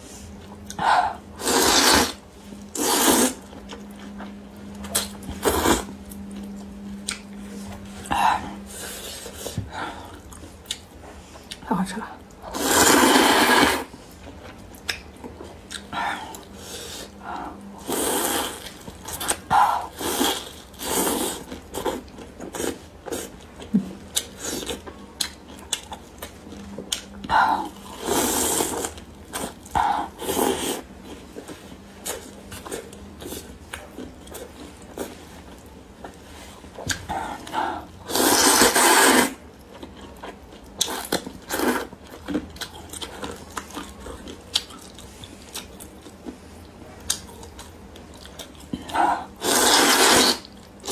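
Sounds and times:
person slurping noodles: 0:01.4 - 0:02.2, 0:02.8 - 0:03.4, 0:12.5 - 0:13.9, 0:17.8 - 0:18.7, 0:19.8 - 0:21.5, 0:27.6 - 0:30.9, 0:38.1 - 0:39.4, 0:49.4 - 0:50.9
chewing and mouth sounds: 0:08.9 - 0:11.6, 0:14.2 - 0:16.6, 0:17.9 - 0:50.9.

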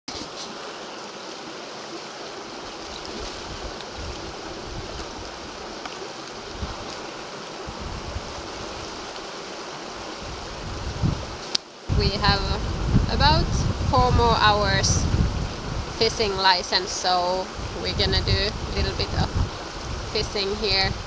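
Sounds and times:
river rapids rushing: 0:00.1 - 0:21.0
wind buffeting microphone: 0:02.9 - 0:05.8, 0:06.4 - 0:09.1, 0:09.9 - 0:21.0.

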